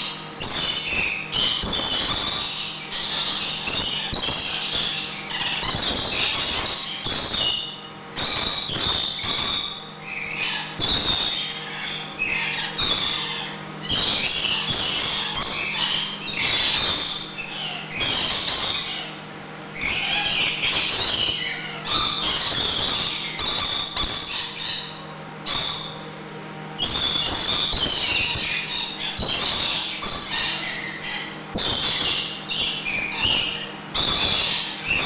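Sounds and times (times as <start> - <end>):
lorikeets screeching: 0.0 - 35.0.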